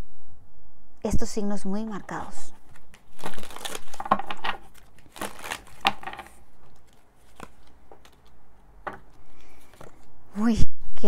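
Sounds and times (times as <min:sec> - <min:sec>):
cards shuffling rustle: 0:01.9 - 0:10.2
cards clicking: 0:02.6 - 0:10.1.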